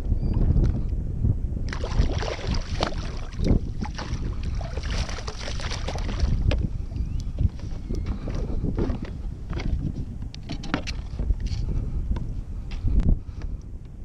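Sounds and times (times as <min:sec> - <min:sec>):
wind on microphone: 0:00.0 - 0:14.0
fish thrashing in water: 0:01.7 - 0:06.6.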